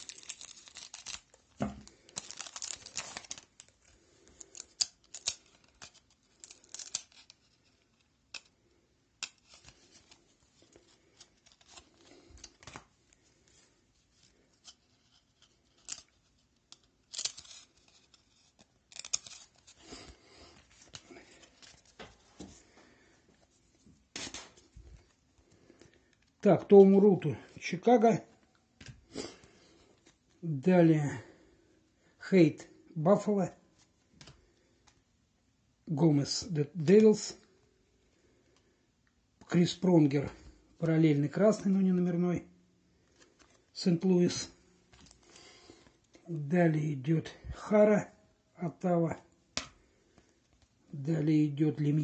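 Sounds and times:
foil wrapper crinkling and tearing: 0:00.0 - 0:08.6, 0:09.2 - 0:12.9, 0:14.0 - 0:22.1
cards being handled: 0:00.0 - 0:27.0, 0:28.7 - 0:30.4, 0:42.9 - 0:46.5, 0:49.5 - 0:50.8.

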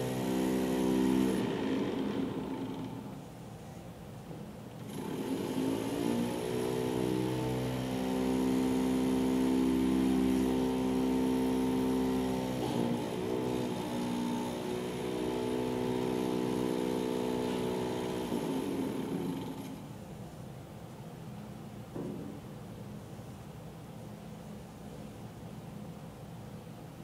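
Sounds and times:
small engine humming: 0:00.0 - 0:03.2, 0:04.8 - 0:19.9.

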